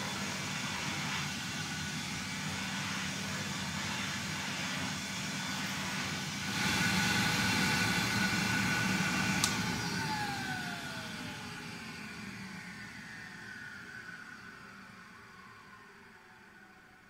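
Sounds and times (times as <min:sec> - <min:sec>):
vacuum cleaner running: 0:00.0 - 0:16.8
motor winding down whine: 0:01.2 - 0:17.0
vacuum switch click: 0:09.4 - 0:09.7.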